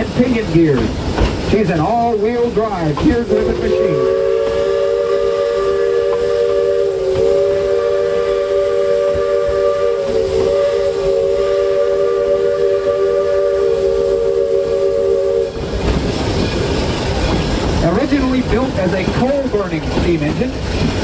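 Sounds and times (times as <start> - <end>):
train rumble and clatter: 0.0 - 21.0
steam locomotive whistle: 3.2 - 15.6.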